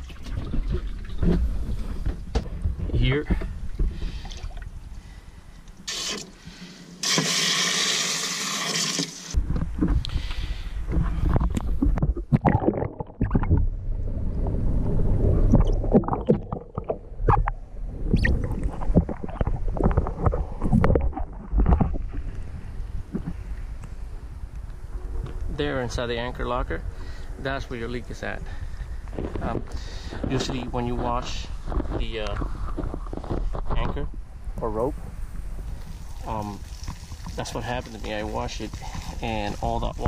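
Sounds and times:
low rumbling: 0.0s - 6.8s, 9.3s - 40.0s
garden hose spraying water: 7.0s - 9.4s, 35.8s - 40.0s.

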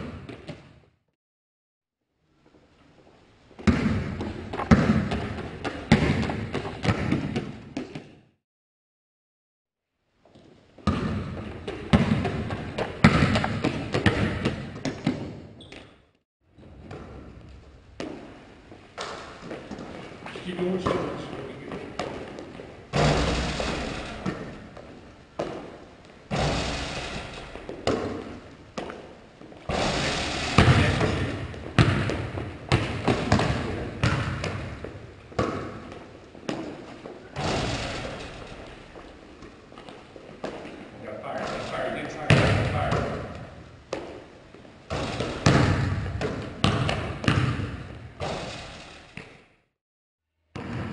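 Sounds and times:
basketball bouncing on hardwood: 0.0s - 0.8s, 3.6s - 8.2s, 10.8s - 15.9s, 20.7s - 29.1s, 29.7s - 36.8s, 42.2s - 44.2s, 44.9s - 49.4s, 50.5s - 50.9s
sneaker footsteps: 2.5s - 8.2s, 16.7s - 49.3s.

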